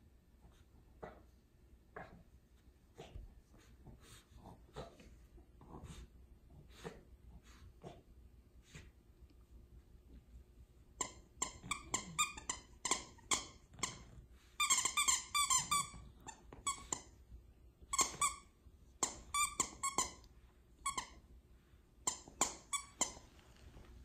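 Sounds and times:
squeaky dog toy squeaking: 11.0 - 17.1, 17.9 - 20.2, 22.0 - 23.2.

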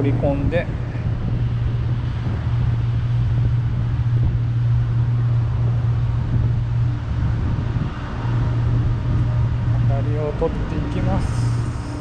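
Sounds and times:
low engine drone: 0.0 - 12.0
low rumble: 0.0 - 12.0.

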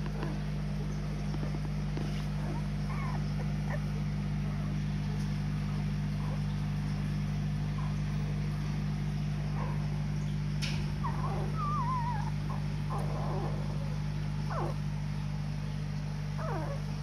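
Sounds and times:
machine humming: 0.0 - 17.0
puppies squeaking: 1.4 - 4.0, 11.0 - 13.6, 14.5 - 14.8, 16.4 - 16.8.

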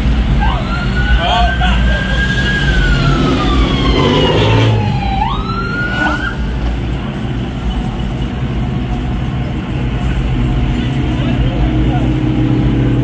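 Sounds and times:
ambulance siren wailing: 0.0 - 6.6
car engines rumbling in traffic: 0.0 - 13.0.

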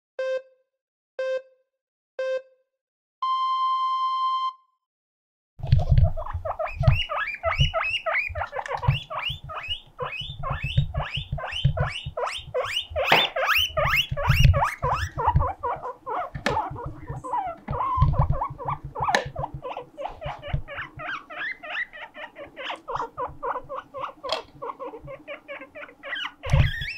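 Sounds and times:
countdown beeps: 0.2 - 0.5, 1.2 - 1.5, 3.2 - 4.7
guinea pig wheeking: 5.6 - 26.9.

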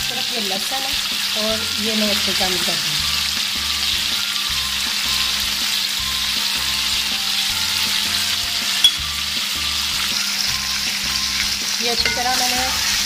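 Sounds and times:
chicken sizzling in hot oil: 0.0 - 13.0.

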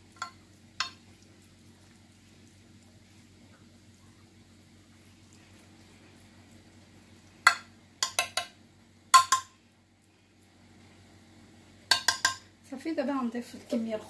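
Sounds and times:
metal spoon clinking on glass dish: 11.9 - 12.4.

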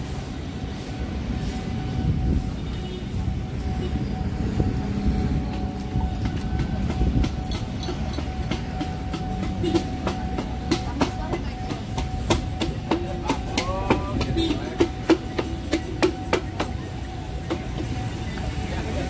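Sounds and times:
train rumbling on rails: 0.0 - 19.0.

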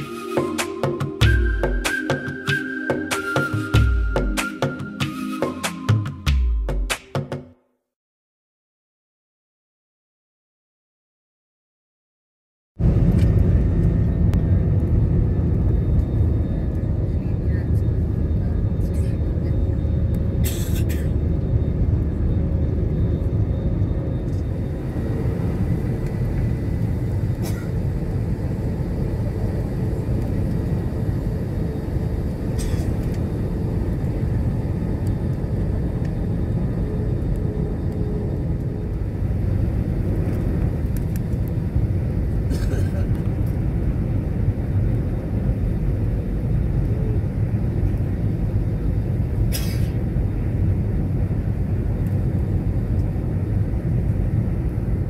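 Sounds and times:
jet engines rumbling in cabin: 12.8 - 55.0.

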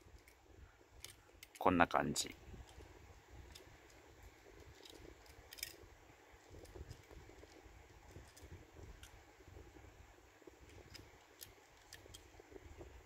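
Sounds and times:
toy van clicks: 1.0 - 2.8, 4.6 - 5.8, 10.6 - 12.3.

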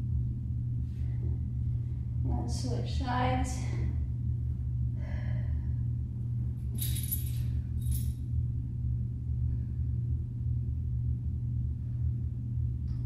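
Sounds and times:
steady low hum: 0.0 - 13.0
dog collar tags jingling: 6.8 - 8.1.

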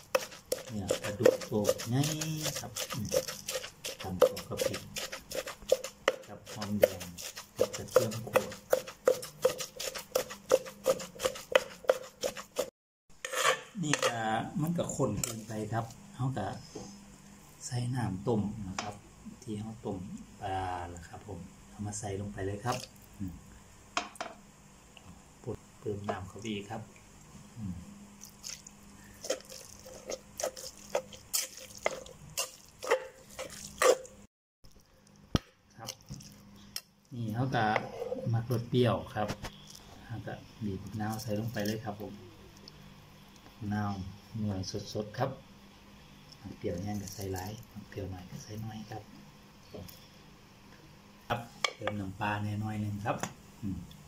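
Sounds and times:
pestle pounding in mortar: 0.0 - 12.7
wet squelching of paste mixing: 0.0 - 12.7, 28.2 - 37.8, 40.6 - 42.8.

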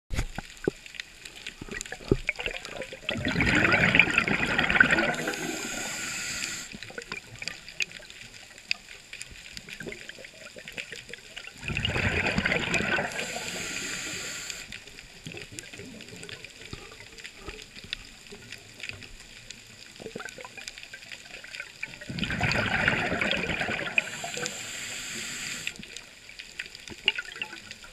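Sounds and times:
faint clicks and crackles: 0.1 - 27.9
underwater breath bubbling: 1.5 - 7.8, 11.5 - 16.0, 21.8 - 26.2.

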